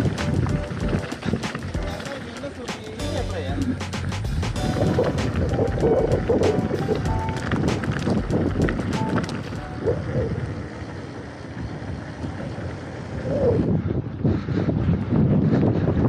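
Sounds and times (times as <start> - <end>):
bike clattering over gravel: 0.0 - 13.0
bike tyre and frame rattle: 0.0 - 16.0
wind buffeting microphone: 0.0 - 16.0.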